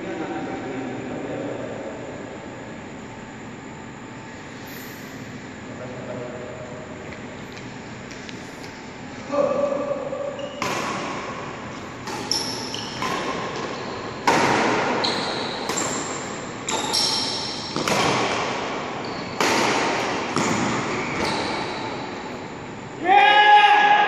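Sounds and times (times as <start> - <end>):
shoe squeaks: 4.3 - 5.4, 10.2 - 11.0, 11.8 - 18.3, 19.0 - 19.6, 20.3 - 22.4
racket hitting shuttlecock: 10.6 - 22.2
person shouting: 23.0 - 24.0.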